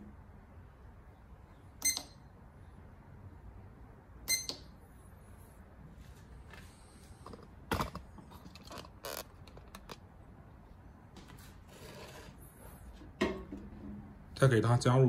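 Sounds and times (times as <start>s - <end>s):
digital scale beep: 1.8s - 2.3s, 4.3s - 4.7s.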